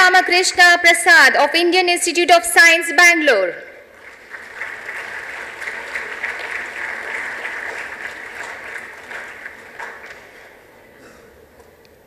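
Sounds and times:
audience applauding: 3.9s - 10.9s.

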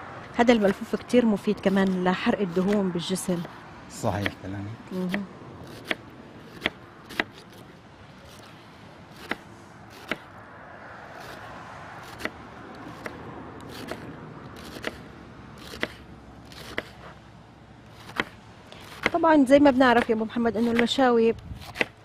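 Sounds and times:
knife chopping cabbage: 5.0s - 7.7s, 12.0s - 15.0s, 15.6s - 17.1s, 17.9s - 19.2s, 19.8s - 22.0s.

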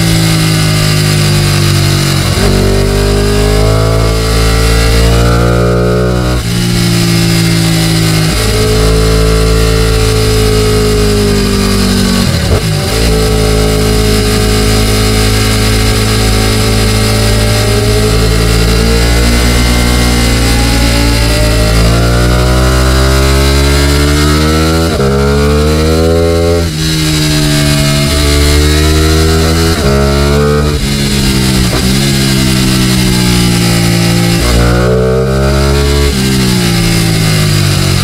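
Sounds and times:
motorcycle engine revving: 0.0s - 38.0s
wind rushing over microphone: 6.0s - 38.0s.

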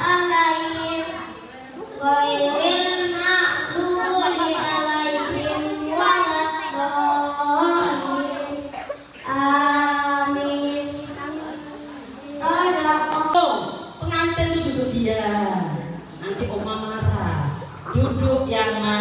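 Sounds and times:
boy singing into microphone: 0.0s - 13.4s.

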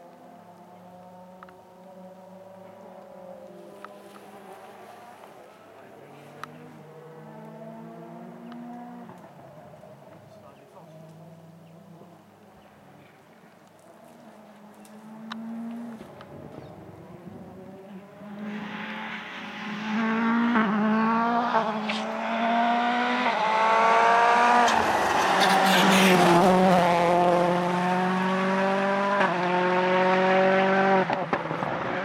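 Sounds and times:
rally car engine at full throttle: 0.0s - 32.0s.

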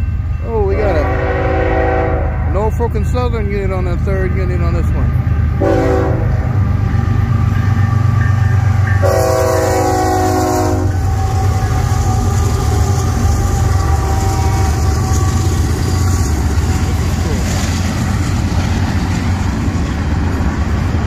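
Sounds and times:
locomotive engine rumble: 0.0s - 21.0s
train wheels on rails: 0.0s - 21.0s
locomotive air horn blast: 1.0s - 2.5s, 5.6s - 6.4s, 9.0s - 11.6s, 13.7s - 15.6s.

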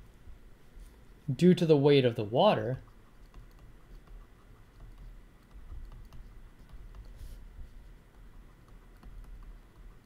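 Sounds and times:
stylus scratching on tablet: 2.5s - 10.0s.

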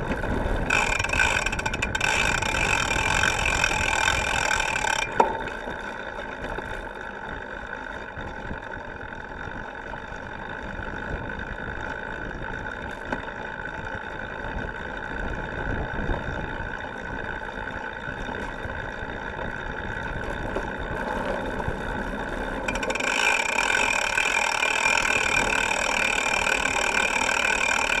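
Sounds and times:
bike freehub buzzing: 0.0s - 28.0s.

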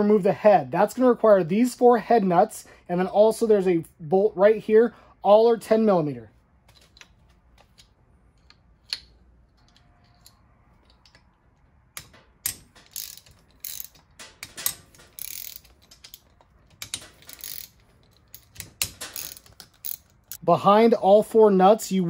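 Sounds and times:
hand ratchet clicking: 12.0s - 20.4s.

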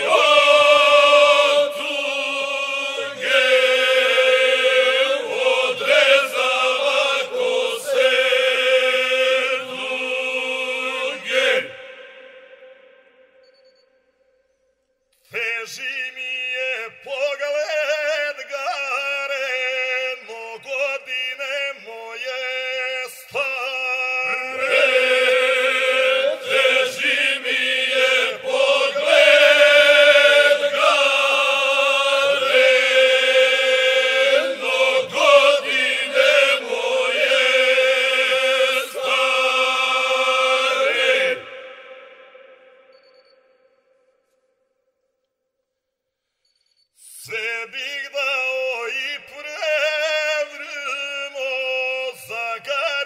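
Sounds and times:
group singing folk song: 0.0s - 12.7s, 24.3s - 43.2s.

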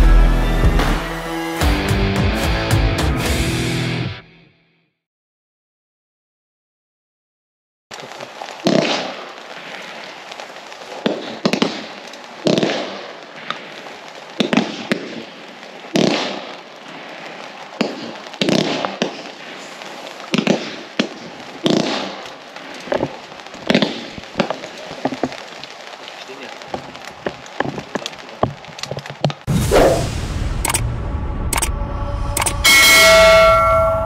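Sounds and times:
steady firework crackle: 7.9s - 31.0s
crackling hiss: 7.9s - 32.6s.

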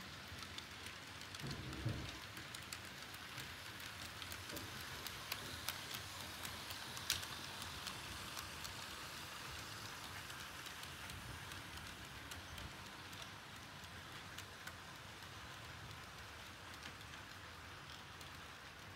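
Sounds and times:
model train rumble and hiss: 0.0s - 18.9s
wheels clicking on rails: 0.0s - 18.9s.

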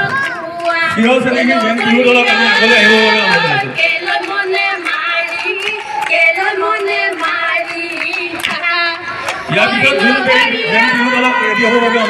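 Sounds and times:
woman singing into microphone: 0.0s - 12.0s
hand clapping: 3.3s - 9.4s.

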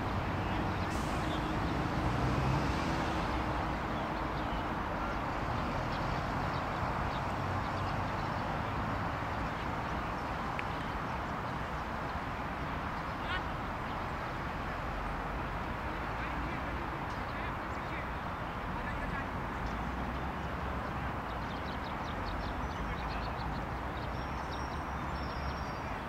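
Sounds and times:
distant road traffic rumble: 0.0s - 26.0s.

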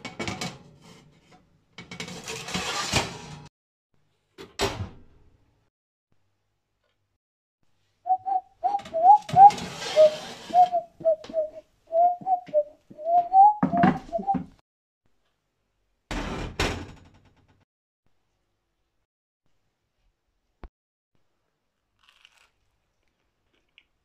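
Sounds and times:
person whistling a tune: 8.1s - 14.4s
kitchenware knocking: 13.6s - 14.4s.

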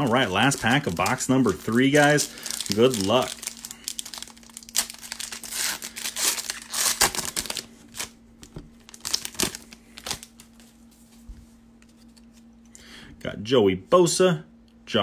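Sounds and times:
foil wrapper crinkling: 0.0s - 10.9s.

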